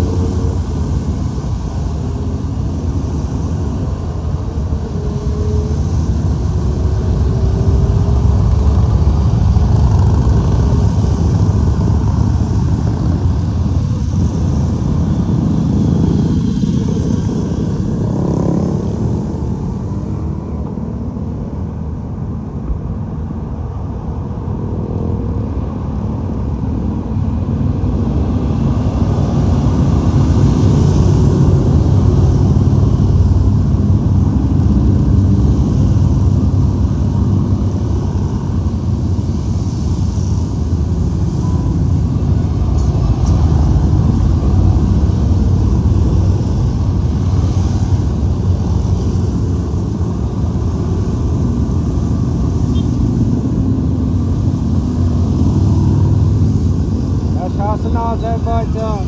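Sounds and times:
motorcycles riding past: 0:14.0 - 0:21.3.

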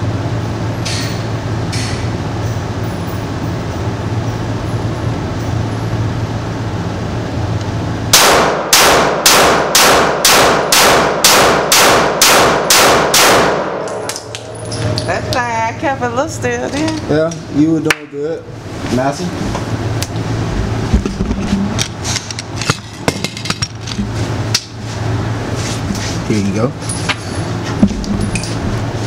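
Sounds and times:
steady low hum: 0:00.0 - 0:29.0
rapid handgun shots echoing: 0:08.1 - 0:14.2.

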